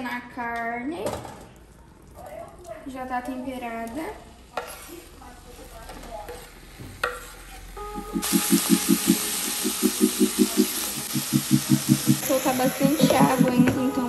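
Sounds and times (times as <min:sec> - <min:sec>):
low pulsing beat: 0:07.8 - 0:14.0
meat sizzling: 0:08.0 - 0:14.0.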